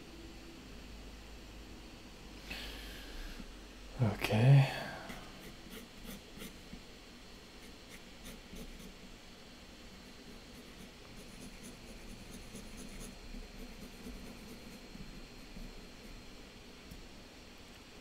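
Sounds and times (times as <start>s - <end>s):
pencil scratching on paper: 5.1s - 6.7s, 7.6s - 9.0s, 9.9s - 16.3s.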